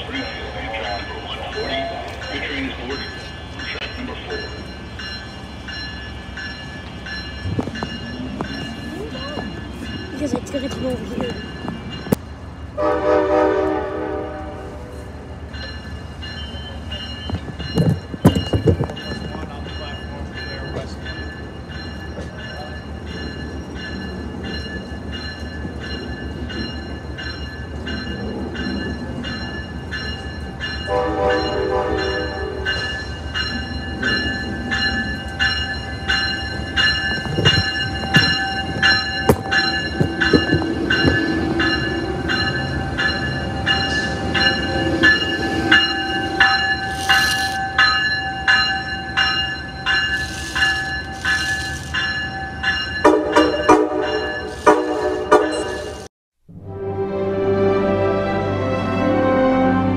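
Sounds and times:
locomotive bell ringing: 0.0 - 56.1
train horn blast: 12.8 - 14.9, 30.9 - 32.7, 53.1 - 55.8
wheels clanking over track: 36.5 - 56.0.

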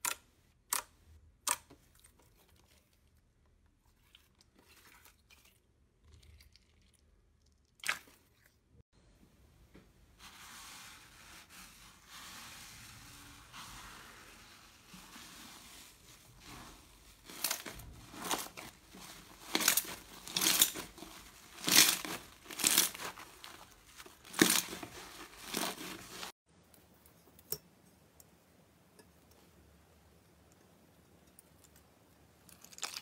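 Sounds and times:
slime crackling and tearing: 17.2 - 26.3.

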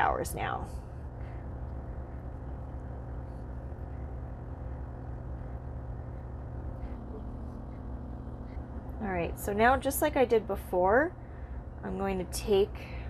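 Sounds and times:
motor humming: 1.0 - 11.7.

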